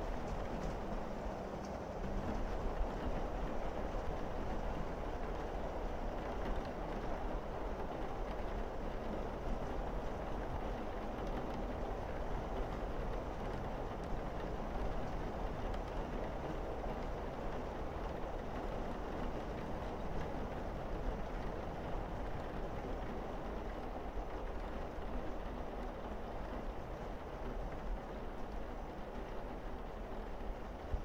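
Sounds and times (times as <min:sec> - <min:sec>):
rain on roof and windows: 0:00.0 - 0:31.0.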